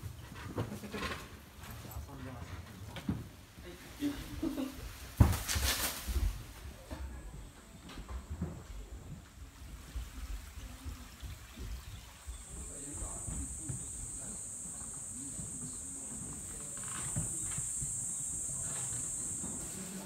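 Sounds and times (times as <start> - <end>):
cicadas buzzing: 4.2 - 20.0
faint murmured voices: 6.6 - 20.0.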